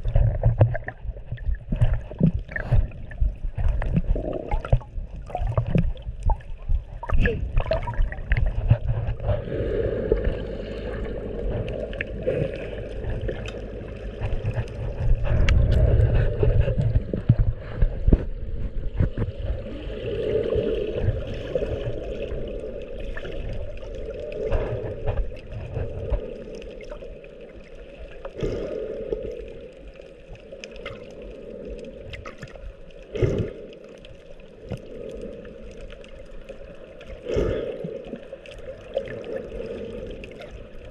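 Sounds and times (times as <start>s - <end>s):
low rumble: 0.0s - 27.8s
underwater water sloshing: 0.0s - 40.9s.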